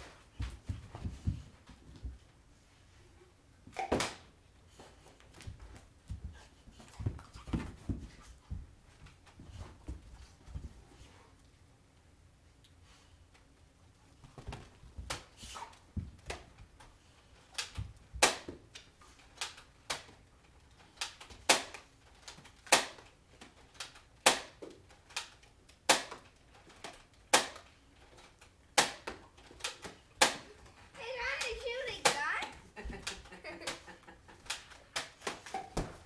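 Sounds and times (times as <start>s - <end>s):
toy blaster firing snaps: 27.3s - 27.7s.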